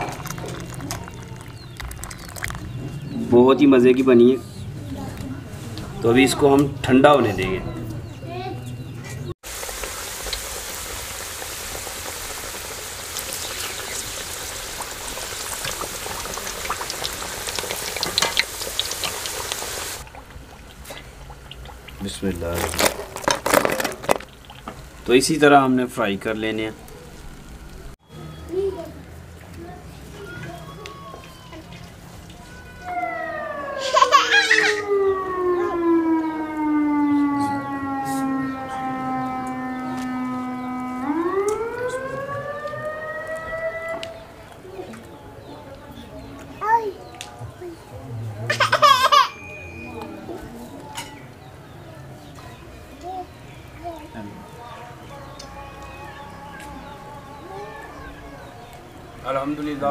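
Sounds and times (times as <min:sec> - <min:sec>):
food deep-frying in hot oil: 0:00.0 - 0:03.1, 0:09.4 - 0:28.0
child's voice: 0:07.7 - 0:08.7, 0:28.5 - 0:31.8, 0:46.6 - 0:47.0, 0:52.4 - 0:54.2, 0:57.4 - 0:58.1
siren wailing: 0:32.4 - 0:44.4, 0:55.0 - 0:59.9.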